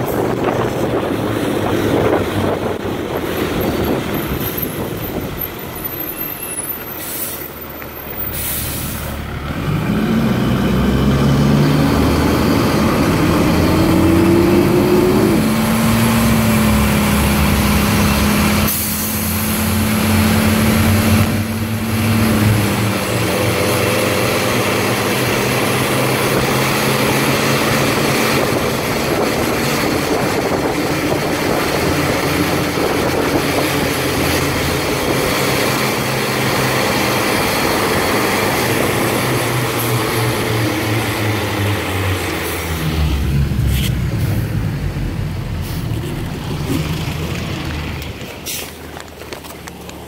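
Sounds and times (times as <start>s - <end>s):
diesel engine: 0.0s - 50.0s
tyre hiss on wet road: 8.2s - 9.2s, 48.4s - 49.0s.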